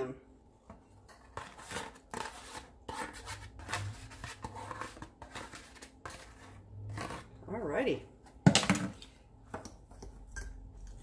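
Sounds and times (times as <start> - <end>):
fork scraping a bowl: 1.0 - 7.5.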